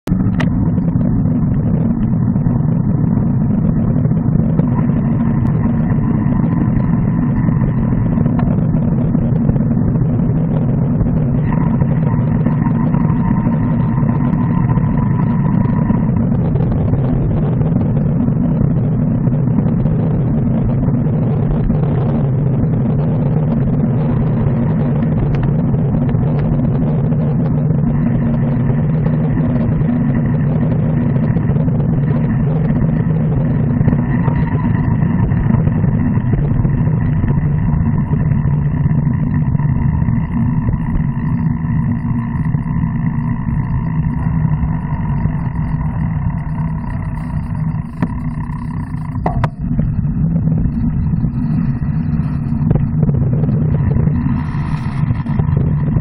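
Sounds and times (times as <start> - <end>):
wind rumble: 0.0 - 56.0
road noise: 0.1 - 56.0
faint thin tones: 40.3 - 55.8.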